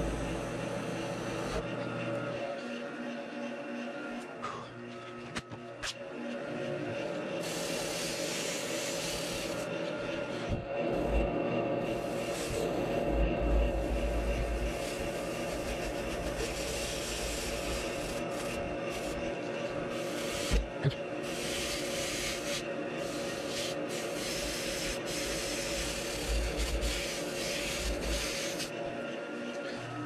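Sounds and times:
lathe motor humming: 0.0 - 30.0
sandpaper rasping on foam: 7.4 - 9.8, 11.8 - 12.7, 13.7 - 28.8.

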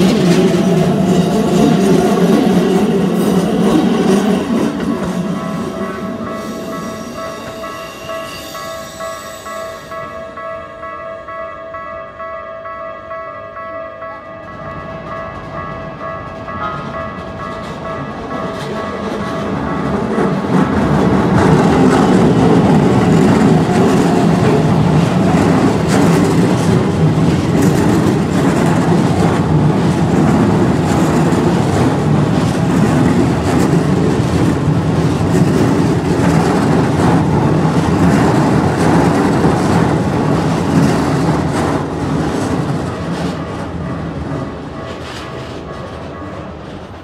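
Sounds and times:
train wheels clattering over rail joints: 15.3 - 46.2.

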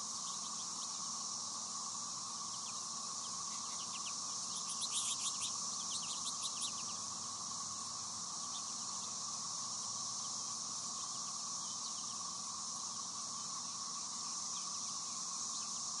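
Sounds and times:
high-pitched insect drone: 0.0 - 16.0
finch chirps and twitters: 2.5 - 7.0.

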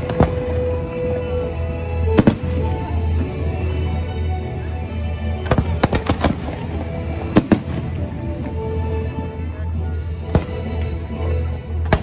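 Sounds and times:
steady music: 0.0 - 12.0
fireworks bangs: 5.5 - 8.6.

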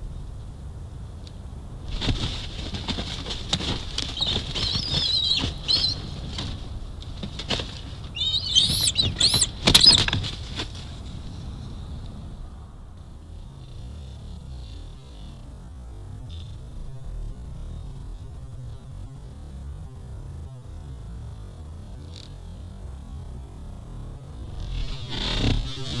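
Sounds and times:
branches rustling and knocking: 1.9 - 11.1
eagle wings flapping: 1.9 - 11.2
eagle chitter: 2.0 - 10.6
high piping calls: 4.0 - 6.3, 7.9 - 10.2.

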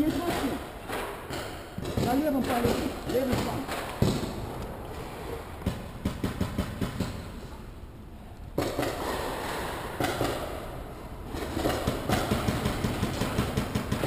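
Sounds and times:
paintball markers firing: 11.3 - 14.0.

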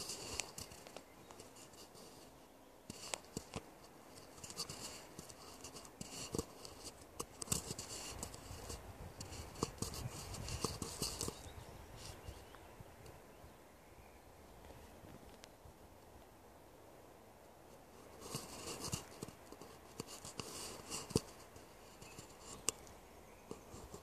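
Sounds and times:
small clicks and taps: 0.0 - 1.9, 2.9 - 11.5, 18.2 - 24.0
scratchy rustling: 0.0 - 12.4, 17.8 - 22.9, 23.5 - 24.0.

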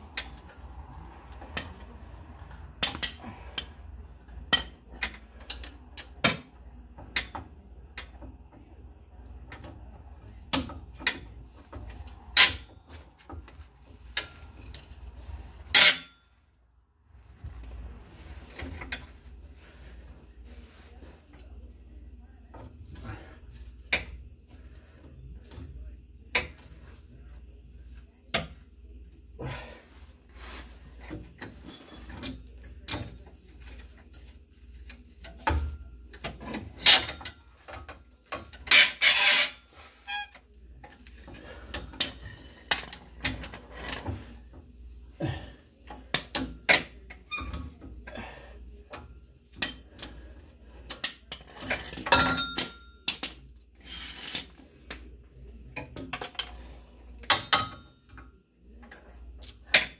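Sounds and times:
metal tools clinking: 0.2 - 5.8.

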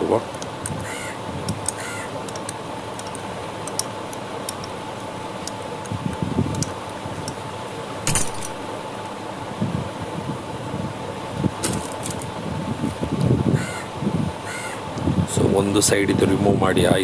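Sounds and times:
steady hum: 0.0 - 17.0
metal tool clinking and rattling: 8.1 - 8.6.

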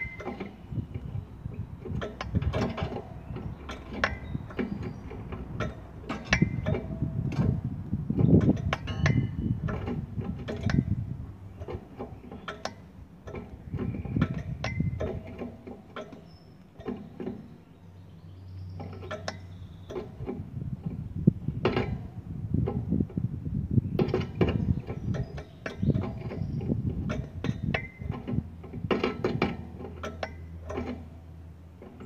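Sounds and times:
wire birdcage clicks and rattles: 1.8 - 7.6, 24.0 - 31.2.

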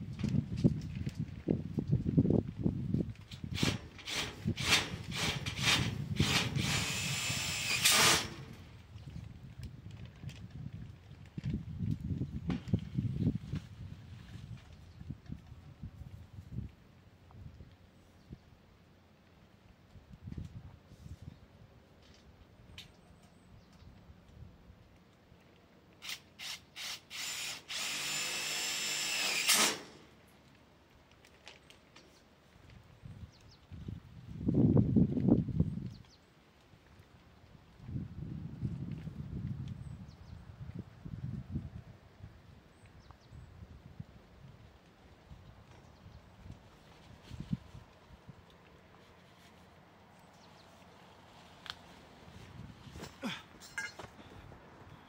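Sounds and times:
power drill whirring: 3.6 - 8.6, 26.0 - 30.0.

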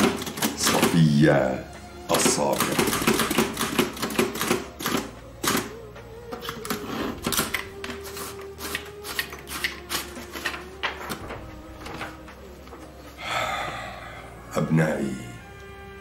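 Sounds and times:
typewriter keys clacking: 0.0 - 1.1, 2.1 - 5.7.

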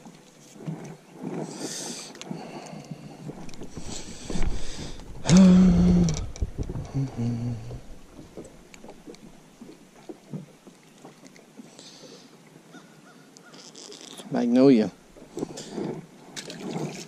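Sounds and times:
faint clicks and rustles: 0.0 - 12.3, 13.4 - 14.4
man humming: 5.2 - 7.9.

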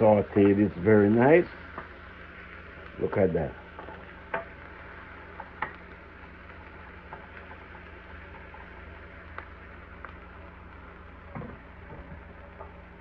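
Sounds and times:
low steady hum: 0.0 - 13.0
vegetables sizzling in oil: 0.0 - 13.0
wooden spoon tapping pan: 3.8 - 4.6.

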